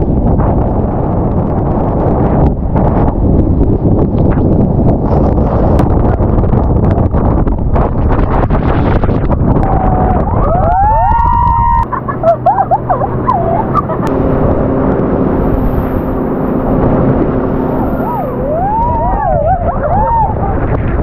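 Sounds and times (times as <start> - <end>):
wind buffeting microphone: 0.0 - 21.0
people shrieking and squealing: 9.7 - 14.0, 17.8 - 20.7.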